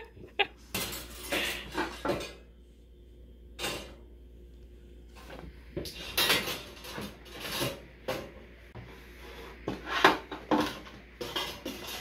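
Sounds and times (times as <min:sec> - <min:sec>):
metal tin scraping and knocking: 0:09.7 - 0:12.0.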